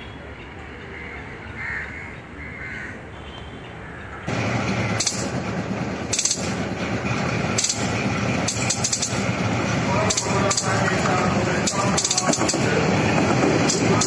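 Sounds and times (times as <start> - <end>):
crows cawing: 0.9 - 3.1
rough rumbling noise: 4.3 - 14.0.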